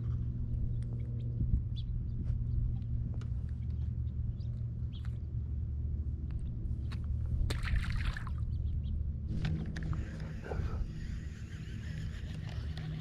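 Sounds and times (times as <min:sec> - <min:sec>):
low steady rumble: 0:00.0 - 0:13.0
water splashing beside boat: 0:07.5 - 0:08.4.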